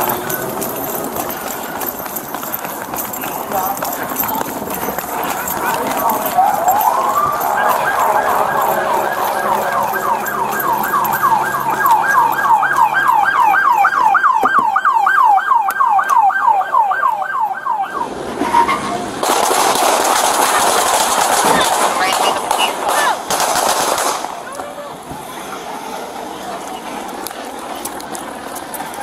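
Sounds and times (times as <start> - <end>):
police siren yelping: 5.4 - 18.8
loud rushing noise: 18.0 - 24.4.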